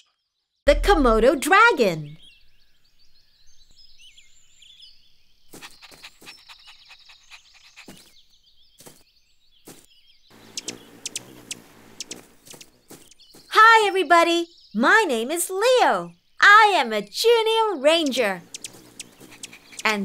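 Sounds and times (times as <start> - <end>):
birds chirping: 0.7 - 20.0
noise with high clicks: 10.6 - 12.7.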